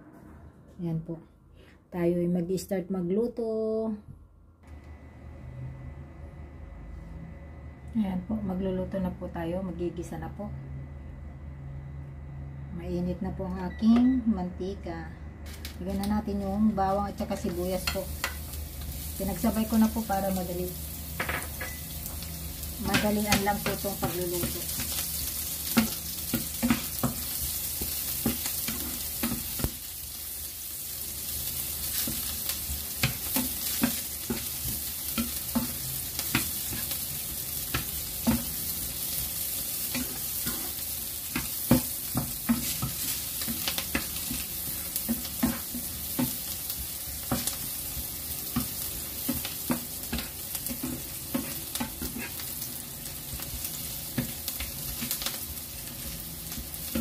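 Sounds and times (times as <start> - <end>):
garlic and onion sizzling in oil: 15.4 - 57.0
wooden spatula scraping pan: 49.3 - 52.5.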